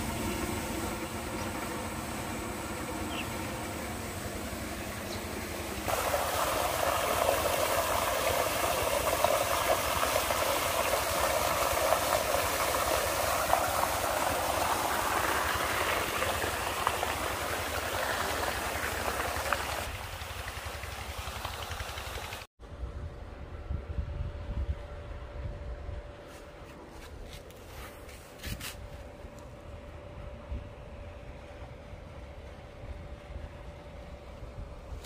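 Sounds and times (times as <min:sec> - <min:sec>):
water pouring into a tank: 0:05.9 - 0:22.5.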